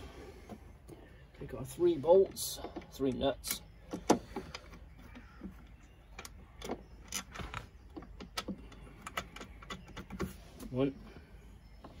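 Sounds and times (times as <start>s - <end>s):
metallic clicks and knocks: 2.3s - 10.3s.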